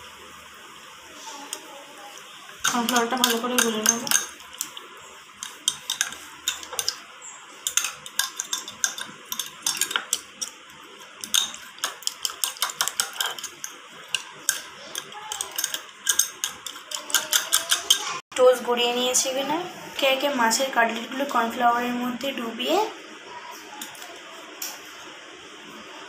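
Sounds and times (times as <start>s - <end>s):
fork whisking in glass bowl: 2.5s - 18.2s.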